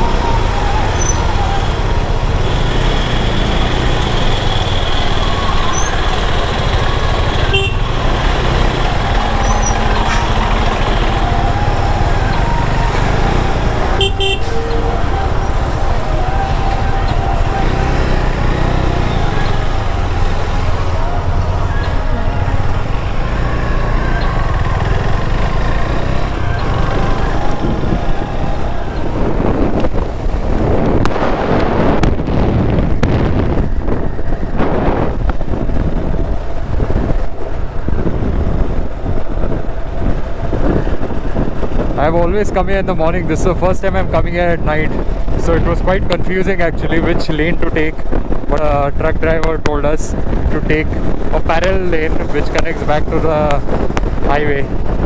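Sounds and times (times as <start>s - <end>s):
motorcycle engine: 0.0s - 41.7s
road and wind noise: 0.0s - 55.0s
vehicle horn toots: 7.3s - 8.0s, 14.0s - 14.8s.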